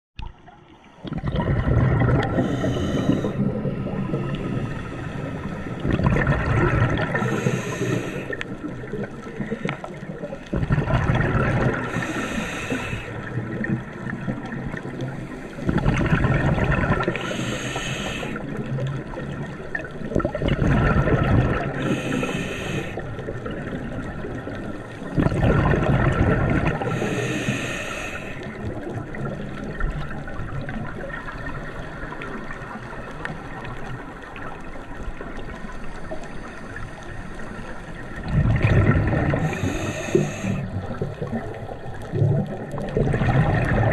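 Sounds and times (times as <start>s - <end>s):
bubbling exhale underwater: 0.3s - 36.0s, 38.1s - 43.9s
regulator hiss: 7.2s - 8.4s, 11.9s - 13.1s, 17.2s - 18.4s, 21.8s - 23.0s, 26.9s - 28.5s, 39.4s - 40.7s.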